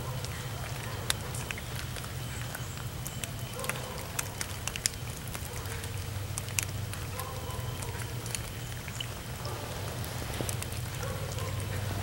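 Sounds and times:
raindrop ticks: 0:00.0 - 0:12.0
rain hissing: 0:07.7 - 0:12.0.

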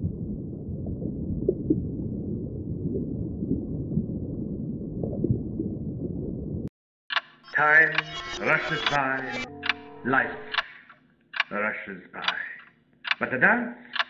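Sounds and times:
deep steady rumble: 0:00.0 - 0:06.7.

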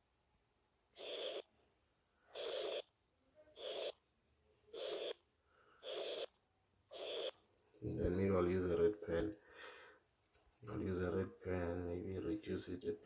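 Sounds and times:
stylus scraping tablet screen: 0:01.0 - 0:01.5, 0:02.3 - 0:02.9, 0:03.5 - 0:04.0, 0:04.7 - 0:05.2, 0:05.8 - 0:07.4.

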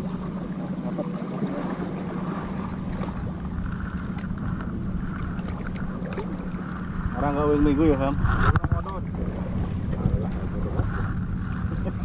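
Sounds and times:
steady low hum: 0:00.0 - 0:12.0
waves lapping: 0:00.0 - 0:12.0
wind buffeting microphone: 0:01.5 - 0:12.0.

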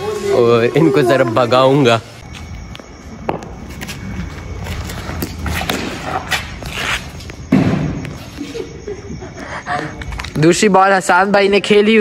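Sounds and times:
loud thud: 0:07.5 - 0:08.1.

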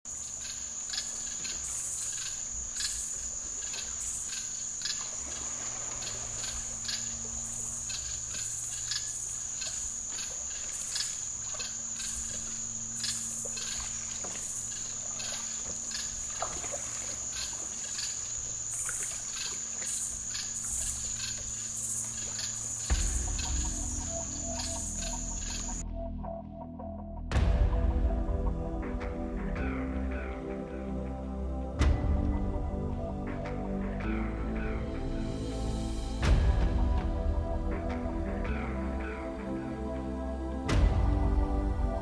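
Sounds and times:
crickets trilling: 0:00.1 - 0:25.8
short insect calls: 0:00.1 - 0:25.8.

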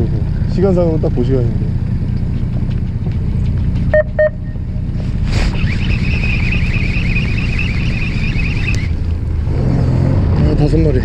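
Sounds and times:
boat engine idling: 0:00.0 - 0:09.3
short beeps: 0:03.9 - 0:04.8
high fluttering whine: 0:04.6 - 0:09.1.

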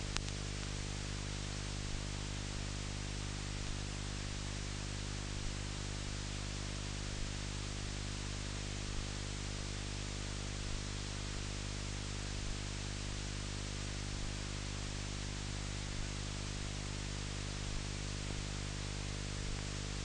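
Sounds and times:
faint tick: 0:00.1 - 0:00.8.

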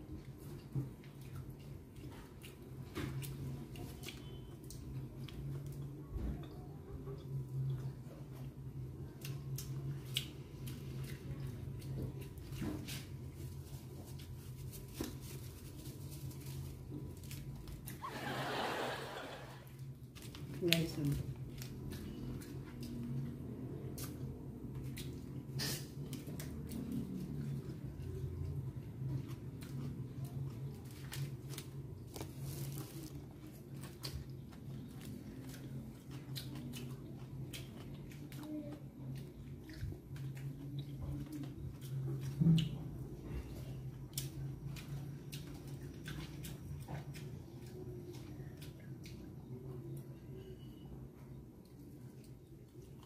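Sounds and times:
biting and chewing food: 0:00.0 - 0:18.0, 0:19.6 - 0:50.2
paper bag rustling: 0:32.1 - 0:33.2.

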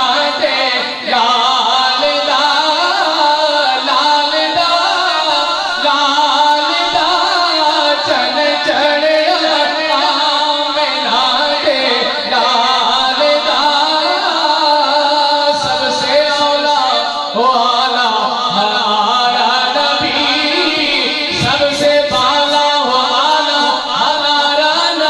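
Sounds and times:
man singing into a microphone: 0:00.0 - 0:25.0.

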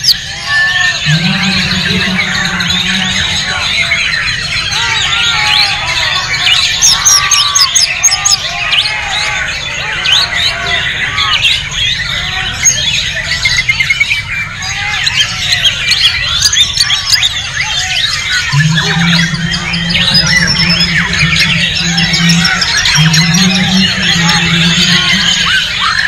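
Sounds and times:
birds singing: 0:00.0 - 0:26.0
low rumble: 0:18.5 - 0:25.6.

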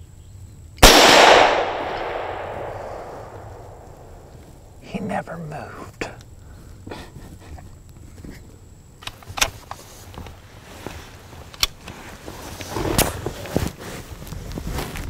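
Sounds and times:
rifle metallic clicks: 0:00.8 - 0:04.5
rustling: 0:09.2 - 0:15.0.

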